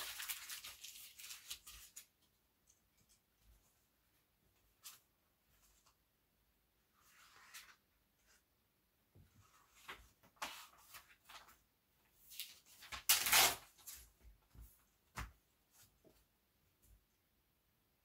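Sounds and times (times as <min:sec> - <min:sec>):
paper rustling: 0:00.0 - 0:02.3, 0:09.4 - 0:14.8.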